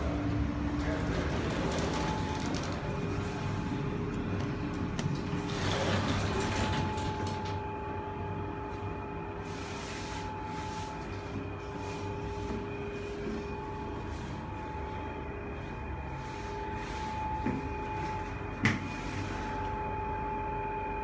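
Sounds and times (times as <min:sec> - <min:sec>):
lift hum with high whine: 0:00.0 - 0:21.0
lift doors sliding closed: 0:00.6 - 0:03.3, 0:05.1 - 0:07.5.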